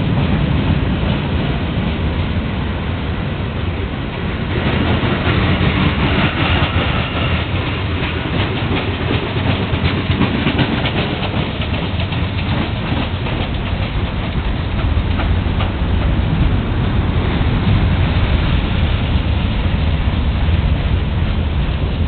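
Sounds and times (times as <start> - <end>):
freight cars rolling past: 0.0 - 22.0
steel wheels clicking over rail joints: 4.5 - 16.9.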